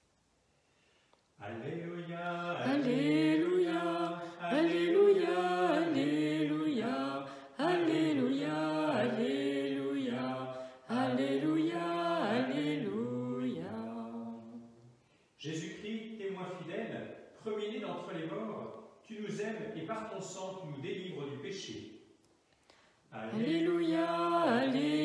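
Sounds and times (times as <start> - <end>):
man singing a chant: 1.4 - 14.1, 23.2 - 24.9.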